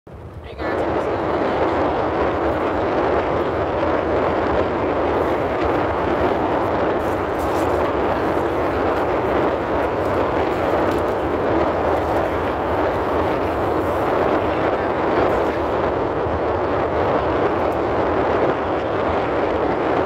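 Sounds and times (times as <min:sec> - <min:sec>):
rushing noise inside car: 0:00.4 - 0:16.0.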